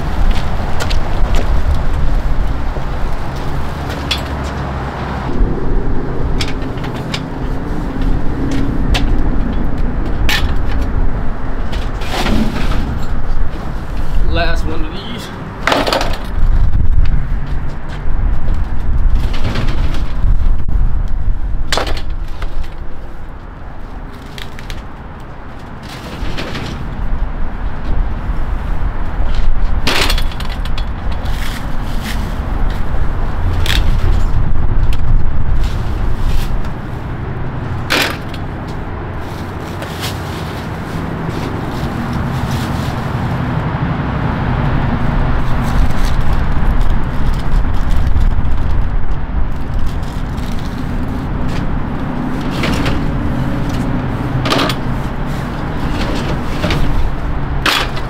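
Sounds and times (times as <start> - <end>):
loud low rumble: 0.0 - 21.7, 31.7 - 39.8, 40.6 - 55.8.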